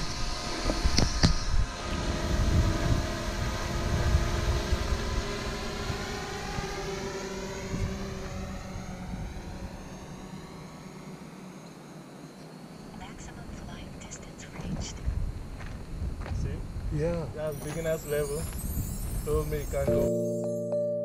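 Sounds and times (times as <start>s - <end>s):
wind rumble on microphone: 0.0s - 10.4s, 14.5s - 19.9s
drone propellers buzzing: 0.0s - 12.9s, 17.5s - 20.2s.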